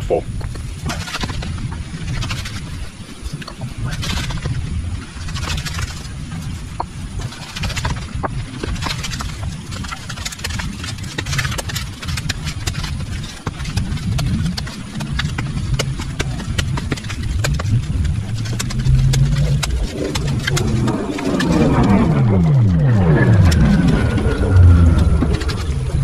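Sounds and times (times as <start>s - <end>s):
sharp clicks and knocks: 6.7s - 26.0s
small engine running: 8.7s - 26.0s.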